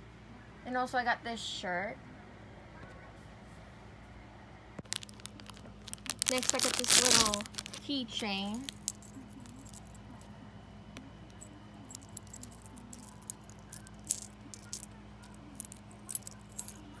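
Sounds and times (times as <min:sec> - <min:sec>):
metal keychain jingling: 0:04.9 - 0:10.3, 0:11.3 - 0:17.0.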